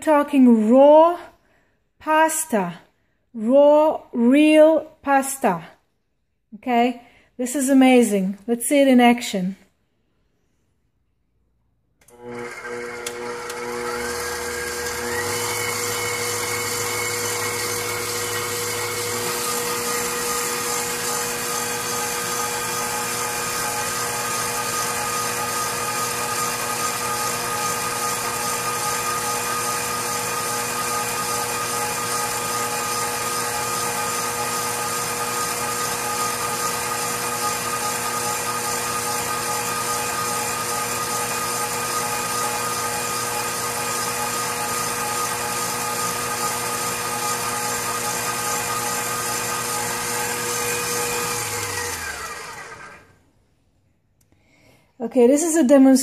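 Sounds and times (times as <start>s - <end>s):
stand mixer motor whining: 12.0s - 53.2s.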